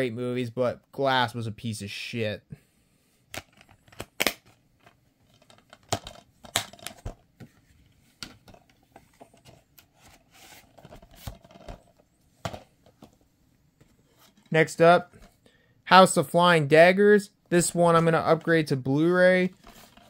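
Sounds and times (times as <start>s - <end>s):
plastic case clicks and snaps: 3.3s - 4.6s.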